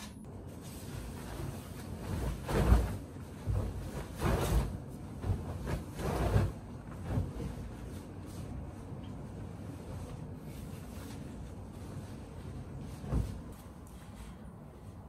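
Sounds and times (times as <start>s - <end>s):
soft thumps and rustles: 12.8s - 13.6s.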